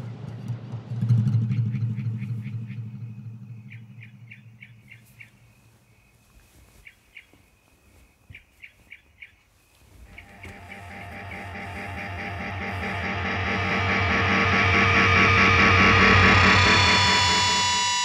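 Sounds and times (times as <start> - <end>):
low rumbling drone: 0.0 - 6.1, 10.0 - 18.0
bird chirping: 1.3 - 14.1.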